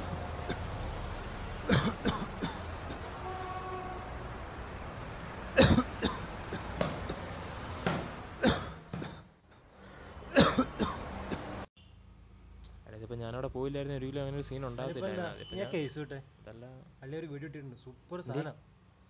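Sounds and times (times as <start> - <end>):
man coughing: 1.7 - 3.1, 5.6 - 6.7, 8.4 - 9.3, 10.3 - 11.0.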